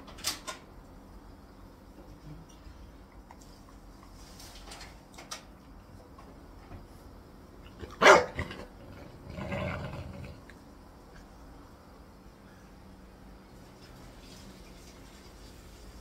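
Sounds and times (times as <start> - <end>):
dog growling: 7.7 - 10.6
puppy barking: 7.8 - 8.6.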